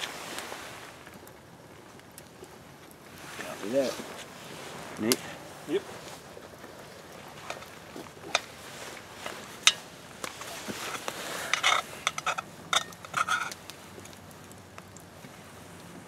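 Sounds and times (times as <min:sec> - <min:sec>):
spoon scraping pot: 0:10.8 - 0:13.6.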